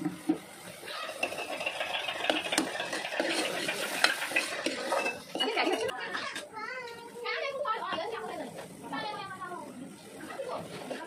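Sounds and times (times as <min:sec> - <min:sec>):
ladle stirring and scraping: 0:00.8 - 0:06.5
ladle clinking against pot: 0:01.1 - 0:05.9.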